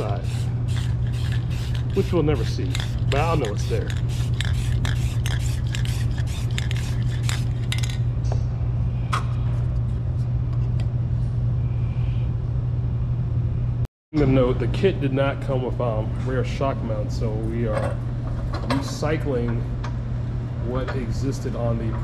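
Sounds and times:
spray-paint can hissing: 0.0 - 8.0
steady low hum: 0.0 - 22.0.

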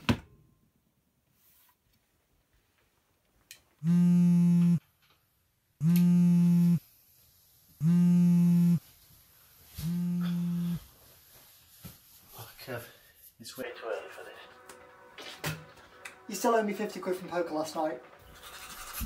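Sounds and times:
phone vibrating on wooden table: 3.8 - 4.8, 5.8 - 6.8, 7.8 - 8.8, 9.8 - 10.8.

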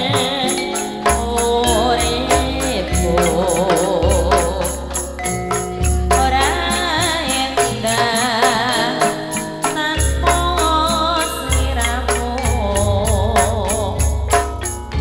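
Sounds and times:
gamelan accompaniment: 0.0 - 15.0
woman singing with vibrato: 0.0 - 15.0.

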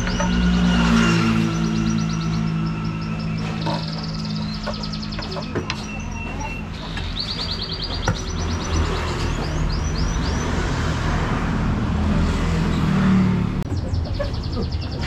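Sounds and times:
vehicle passing on road: 0.0 - 5.2, 8.5 - 15.0
small birds chirping: 0.0 - 11.0, 12.6 - 15.0.

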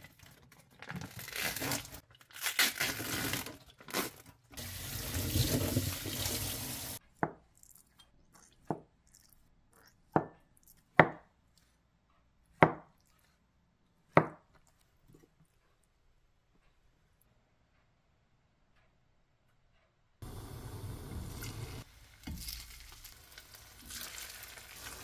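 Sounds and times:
water pouring into metal sink: 4.6 - 7.0.

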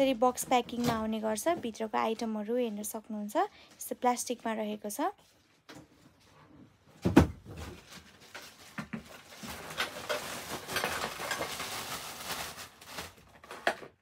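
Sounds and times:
plastic wrapping crinkling: 7.4 - 14.0.

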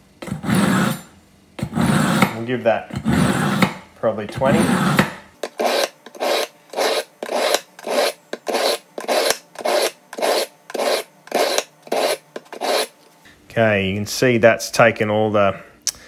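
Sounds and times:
knife rasping on sharpener wheel: 0.2 - 13.0.

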